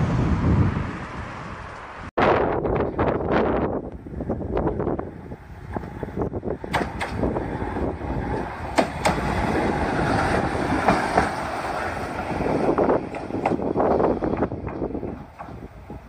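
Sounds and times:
tram rumbling past: 0:00.0 - 0:16.0
wheel clicks over rail joints: 0:05.6 - 0:16.0.

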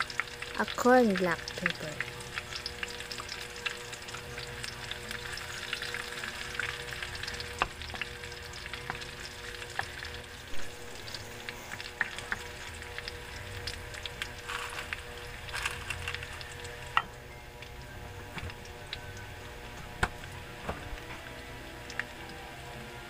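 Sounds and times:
oil popping: 0:00.0 - 0:22.3
food sizzling in hot oil: 0:00.0 - 0:23.0.

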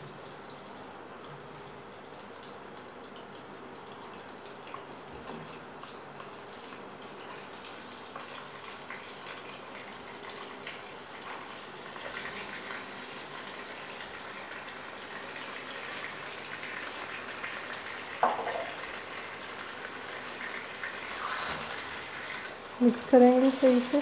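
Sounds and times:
chicken sizzling in hot oil: 0:05.0 - 0:24.0.

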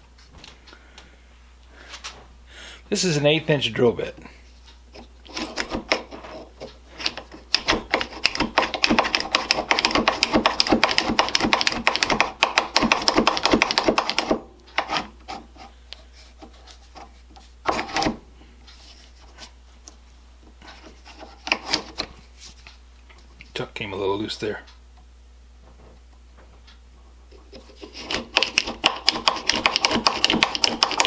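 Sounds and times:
scattered knocks and clicks: 0:05.4 - 0:15.0, 0:27.8 - 0:31.0.

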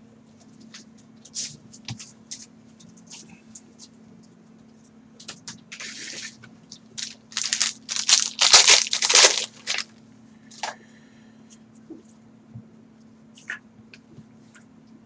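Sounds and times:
foil wrapper crinkling and tearing: 0:07.0 - 0:09.9.

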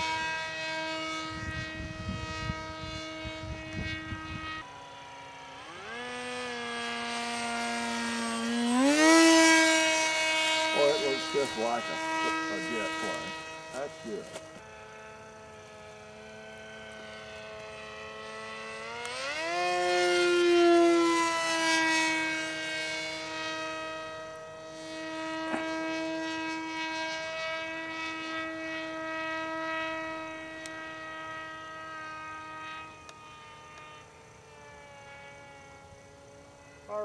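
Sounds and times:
model jet electric motor whine: 0:00.0 - 0:37.0.

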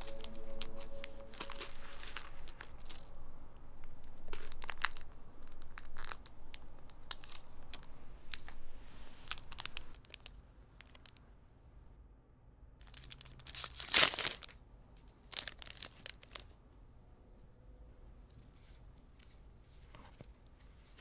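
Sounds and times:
coins clinking: 0:00.0 - 0:03.2, 0:03.8 - 0:08.6.

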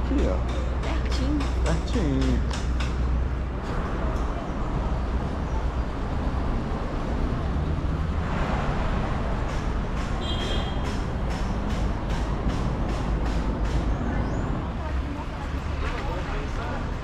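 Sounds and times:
street traffic rumble: 0:00.0 - 0:17.0
steady taps: 0:00.3 - 0:03.1, 0:10.8 - 0:13.9
vehicle passing: 0:02.8 - 0:10.2.

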